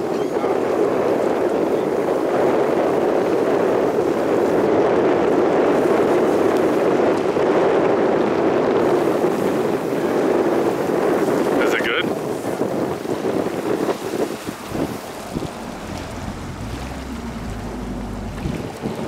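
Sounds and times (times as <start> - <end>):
boat engine running: 12.1 - 19.0.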